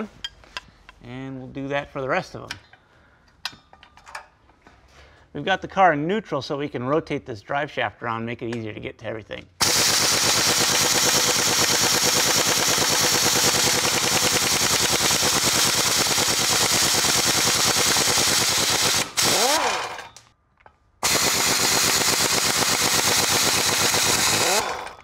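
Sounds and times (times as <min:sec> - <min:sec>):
impact wrench hammering: 0:09.6 - 0:20.3, 0:21.0 - 0:25.0.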